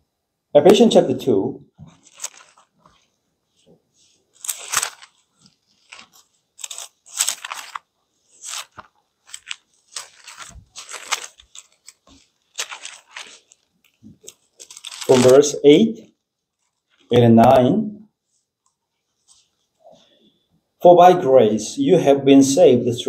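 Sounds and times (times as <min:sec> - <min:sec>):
thin pages rustling: 0:01.8 - 0:17.6.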